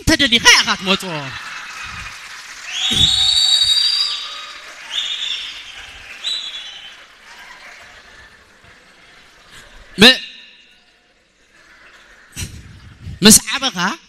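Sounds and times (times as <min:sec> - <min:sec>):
audience laughing: 0:00.3 - 0:02.7, 0:04.2 - 0:10.0, 0:11.2 - 0:13.1.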